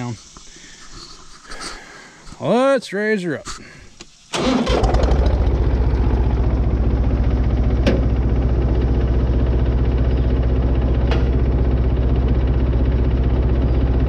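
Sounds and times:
tractor engine idling: 4.3s - 14.0s.

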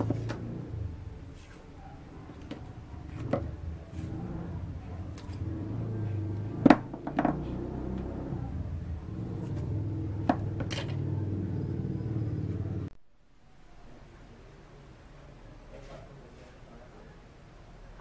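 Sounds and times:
steady low hum: 0.0s - 14.3s.

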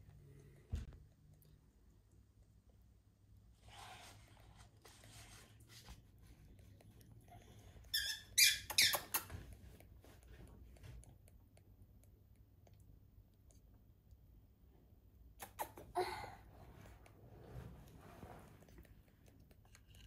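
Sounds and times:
bird chick squeaking: 7.9s - 9.3s.

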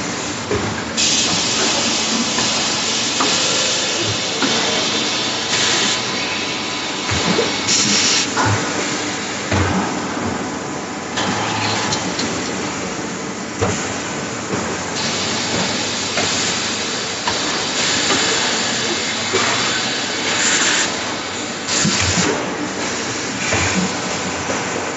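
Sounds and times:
production line machinery running: 0.0s - 24.9s
compressed air hissing bursts: 1.0s - 6.1s.

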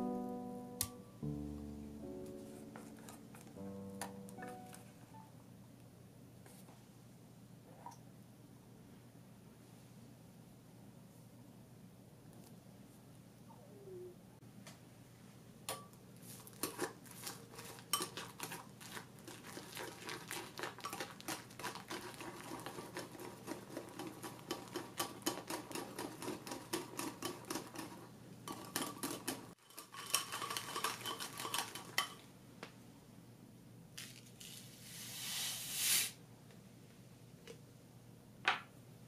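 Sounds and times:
whisk beating cream in glass bowl: 16.7s - 32.2s.

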